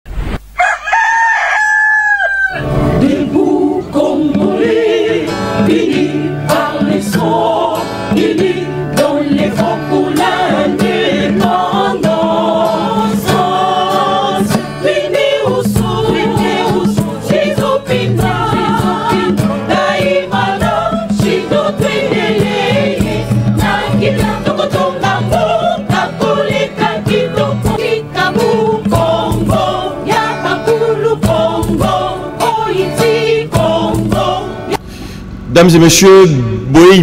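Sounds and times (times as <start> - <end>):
rooster crowing: 0.4 - 2.9
choir music with steady beat: 2.8 - 34.8.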